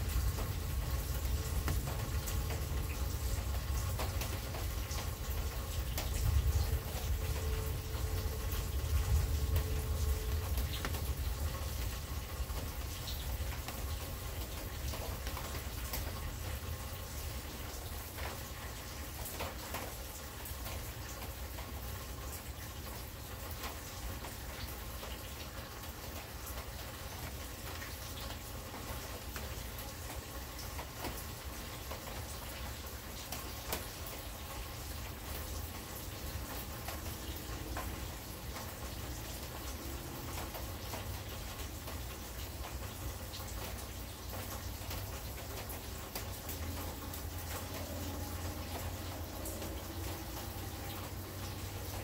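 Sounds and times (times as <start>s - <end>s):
low thunder rumble: 0.0s - 14.0s
rain falling: 0.0s - 52.0s.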